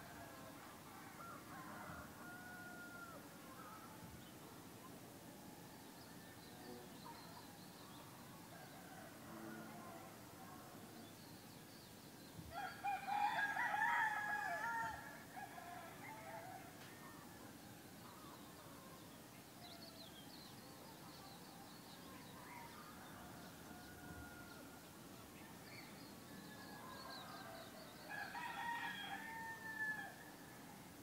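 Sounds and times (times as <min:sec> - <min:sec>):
rooster crowing: 0:12.5 - 0:16.8, 0:27.0 - 0:30.3.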